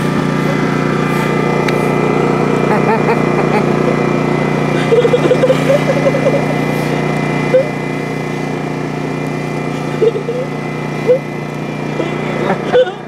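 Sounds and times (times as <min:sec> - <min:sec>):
small engine running: 0:00.0 - 0:13.0
voices and laughter: 0:02.7 - 0:06.8, 0:11.9 - 0:13.0.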